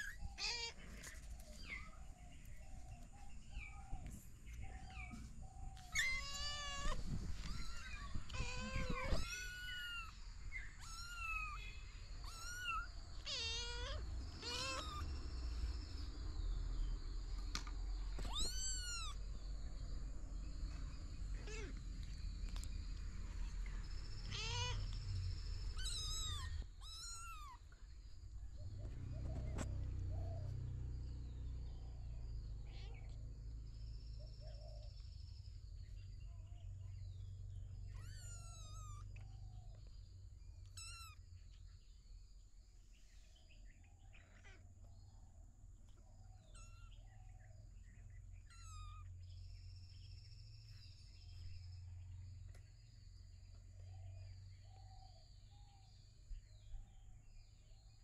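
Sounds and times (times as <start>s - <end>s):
kittens mewing: 0.0s - 4.1s, 4.7s - 15.2s, 18.2s - 19.2s, 21.3s - 22.1s, 23.4s - 27.8s, 32.6s - 33.2s, 37.9s - 39.4s, 40.7s - 41.2s, 46.4s - 47.1s, 48.4s - 49.1s.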